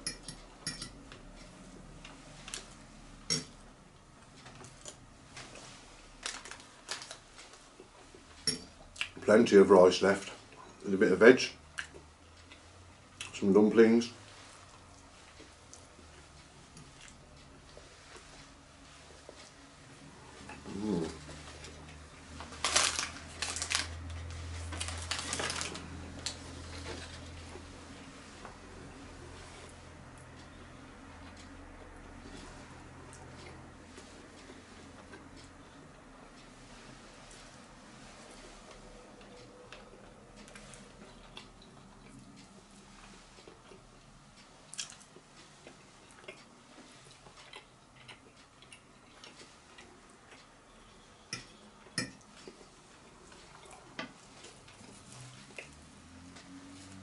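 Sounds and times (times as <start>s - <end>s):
paper wrapper crinkling: 6.2s - 7.2s, 22.4s - 26.4s.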